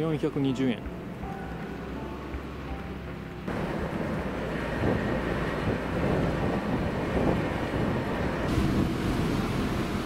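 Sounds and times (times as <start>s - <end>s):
ferry engines rumbling: 0.0s - 10.0s
wind buffeting microphone: 3.5s - 10.0s.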